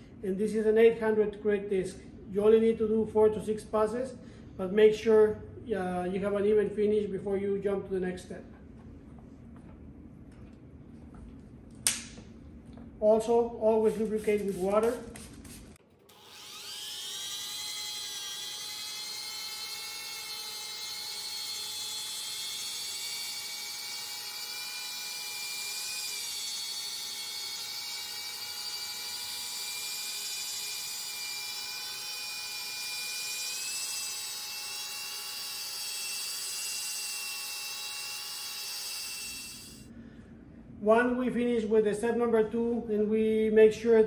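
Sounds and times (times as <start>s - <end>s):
electric drill motor whining: 16.1s - 39.9s.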